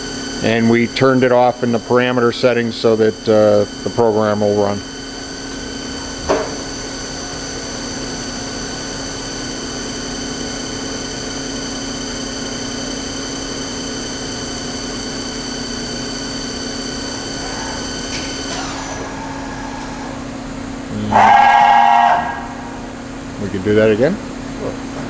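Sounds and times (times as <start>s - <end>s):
low machine hum: 0.0s - 25.0s
machine spindle whine: 0.0s - 25.0s.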